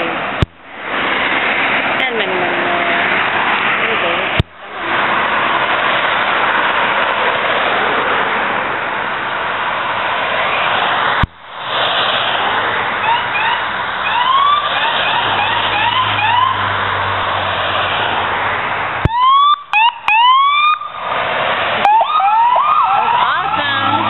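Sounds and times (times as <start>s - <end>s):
passing traffic rush: 0.0s - 24.0s
police siren whoops: 13.0s - 16.7s, 19.1s - 21.0s, 21.8s - 24.0s.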